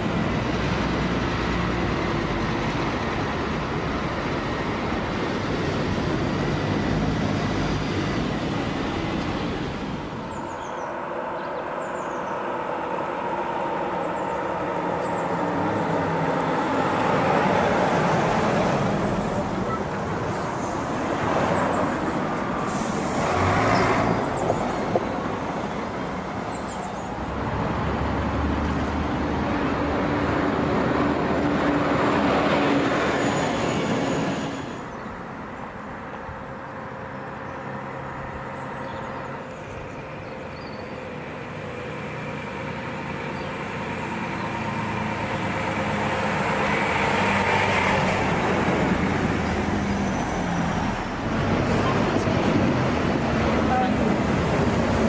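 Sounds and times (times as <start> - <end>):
bus engines running: 0.0 - 55.0
air brakes hissing: 22.6 - 23.4.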